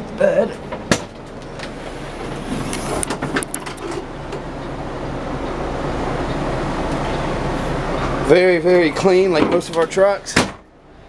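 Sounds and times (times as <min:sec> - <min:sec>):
air-conditioning blower: 0:00.0 - 0:11.0
truck engine idling: 0:00.0 - 0:11.0.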